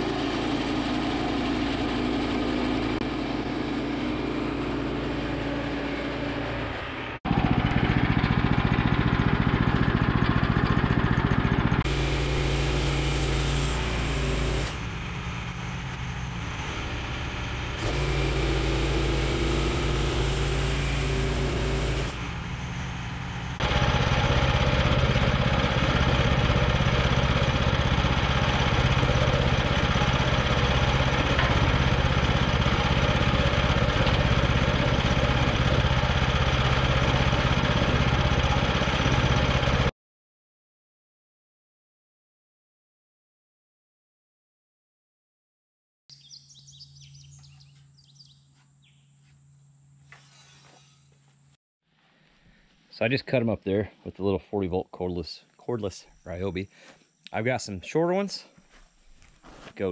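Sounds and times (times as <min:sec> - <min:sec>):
sawmill gas engine running: 0:00.0 - 0:39.9.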